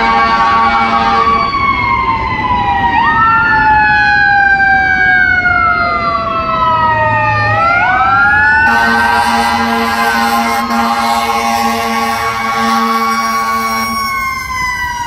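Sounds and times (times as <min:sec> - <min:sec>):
sirens wailing: 0:00.0 - 0:15.0
traffic noise: 0:00.0 - 0:15.0.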